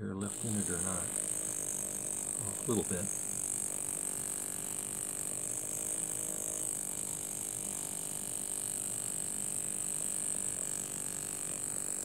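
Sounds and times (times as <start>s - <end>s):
model steam engine running: 0.1s - 12.0s
high hiss: 0.2s - 3.6s.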